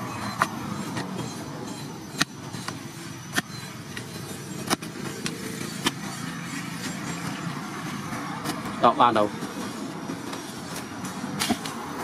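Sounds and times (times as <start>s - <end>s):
digging tool chopping hard soil: 2.2s - 4.0s, 4.6s - 6.1s, 11.2s - 11.9s.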